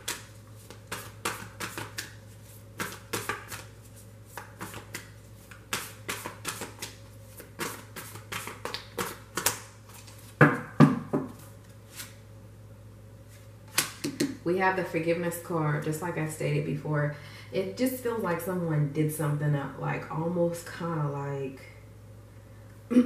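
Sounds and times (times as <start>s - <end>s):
cards being shuffled: 0.0s - 10.4s.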